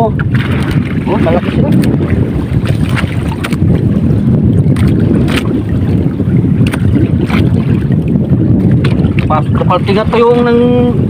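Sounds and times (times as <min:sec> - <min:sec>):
wind buffeting microphone: 0:00.0 - 0:11.0
sharp knocks or splashes: 0:00.1 - 0:03.8, 0:04.6 - 0:09.3.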